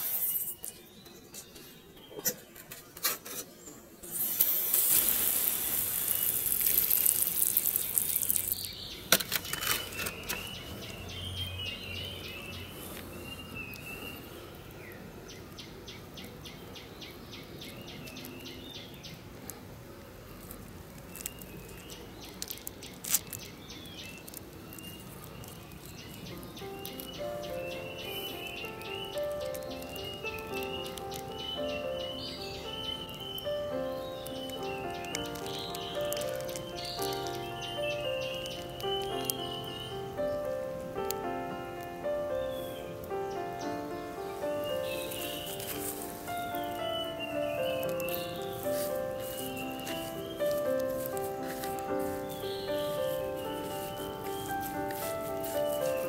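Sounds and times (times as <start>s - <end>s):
hose spray hissing onto soil: 0.0s - 1.0s, 4.0s - 10.6s, 23.0s - 41.4s, 42.3s - 56.0s
birds chirping: 0.0s - 56.0s
rapid even ticking calls: 4.0s - 9.1s, 21.2s - 56.0s.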